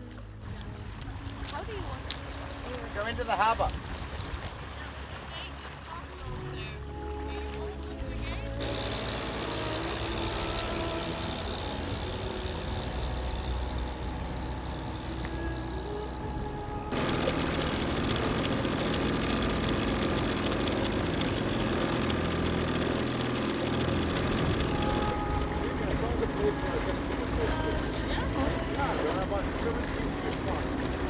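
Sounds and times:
outboard motor running: 0:00.0 - 0:31.0.

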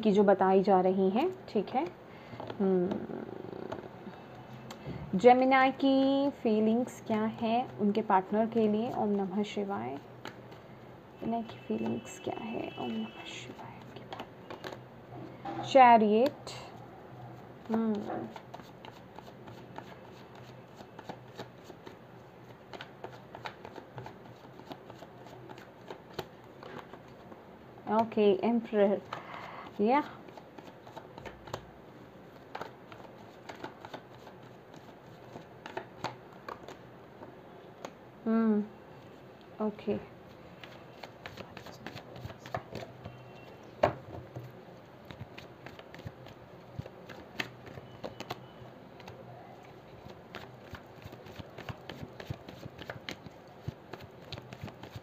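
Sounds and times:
cards being shuffled: 0:17.6 - 0:27.3, 0:29.0 - 0:31.7, 0:32.3 - 0:36.8, 0:40.6 - 0:43.2, 0:44.2 - 0:55.0.

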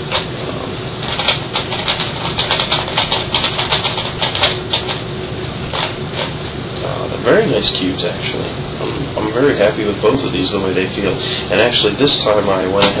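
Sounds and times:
steady low hum: 0:00.0 - 0:13.0
speed cube layers clicking: 0:01.0 - 0:05.0.

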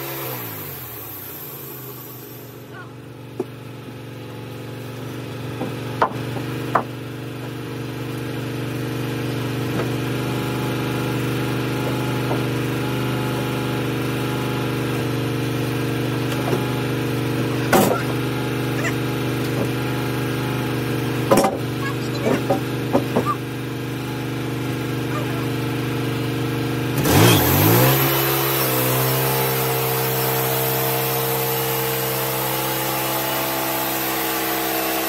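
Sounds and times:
sawmill engine running: 0:00.0 - 0:35.0
wooden knocks of timber: 0:05.5 - 0:07.0, 0:11.8 - 0:12.6, 0:21.3 - 0:23.4.

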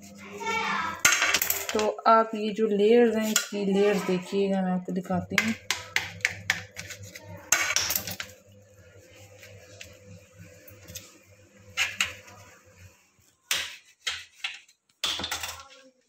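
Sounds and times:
knife scraping: 0:06.5 - 0:08.4.

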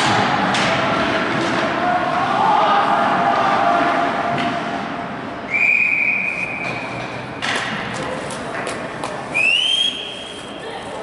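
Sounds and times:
arena background noise: 0:00.0 - 0:11.0.

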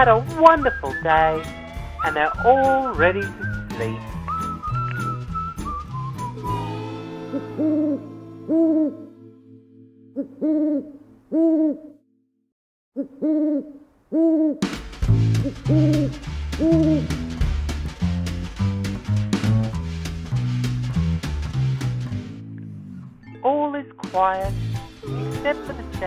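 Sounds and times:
music with bass line: 0:00.0 - 0:07.1, 0:14.7 - 0:23.3, 0:24.0 - 0:26.0
owl hooting: 0:06.3 - 0:09.4, 0:10.2 - 0:12.0, 0:13.0 - 0:14.6, 0:15.5 - 0:17.1.

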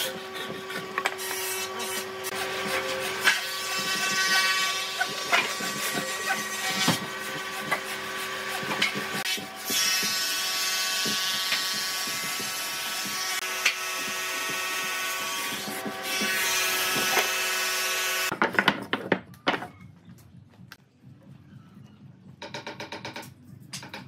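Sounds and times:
hand saw rasping through wood: 0:00.0 - 0:17.3.

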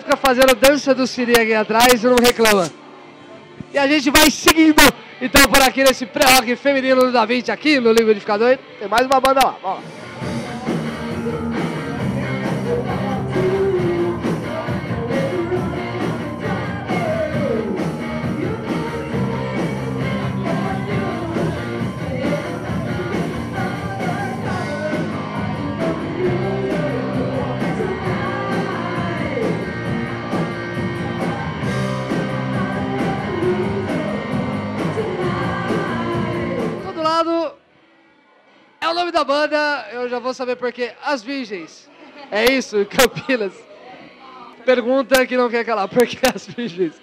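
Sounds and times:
live rock band playing: 0:09.8 - 0:36.9
woman singing: 0:10.2 - 0:29.7, 0:31.0 - 0:36.9.

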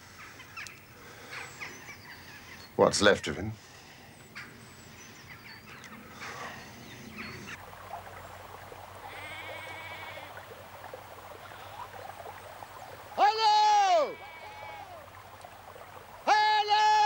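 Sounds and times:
sheep bleating: 0:09.1 - 0:10.4, 0:13.2 - 0:15.0.

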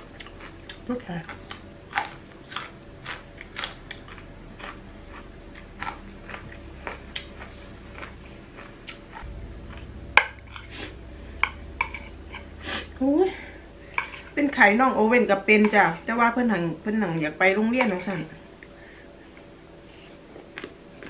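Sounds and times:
person chewing crunchy salad: 0:00.0 - 0:12.9, 0:20.0 - 0:21.0.

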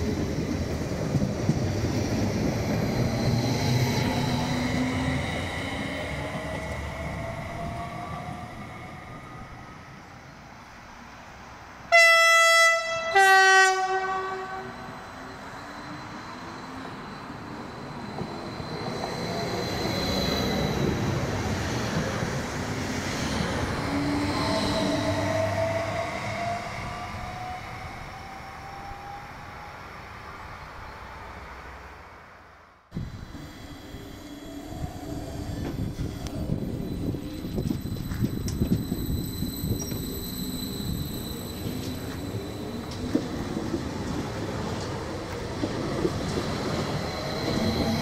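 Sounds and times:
train running past: 0:00.0 - 0:32.3, 0:33.0 - 0:48.0
train horn blasts: 0:11.9 - 0:14.9.

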